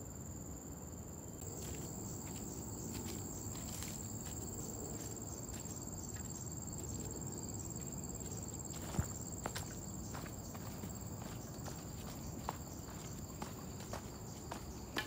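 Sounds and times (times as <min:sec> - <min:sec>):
footsteps crunching dry leaves: 0:01.5 - 0:07.1.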